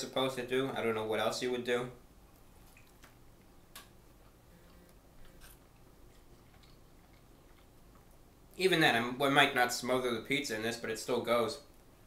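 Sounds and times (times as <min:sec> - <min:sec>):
biting and chewing pizza: 0:02.6 - 0:08.3.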